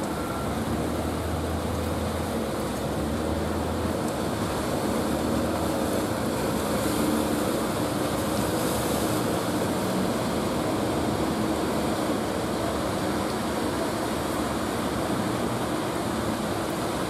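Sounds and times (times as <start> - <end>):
surf washing: 0.0 - 17.0
waves breaking: 0.0 - 17.0
wind: 0.0 - 17.0.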